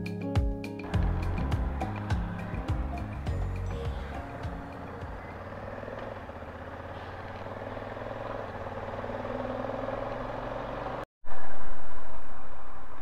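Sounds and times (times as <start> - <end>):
motorcycle engine running: 0.8 - 11.1.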